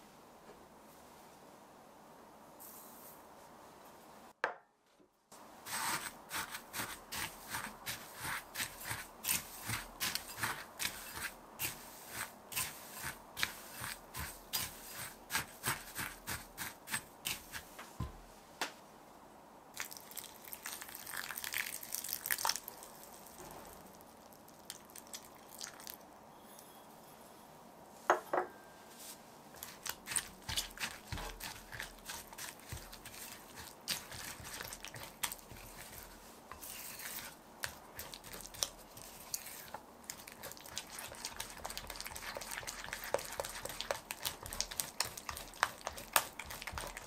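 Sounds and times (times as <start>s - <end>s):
utensil mixing food in a bowl: 5.6s - 17.8s, 29.5s - 47.0s.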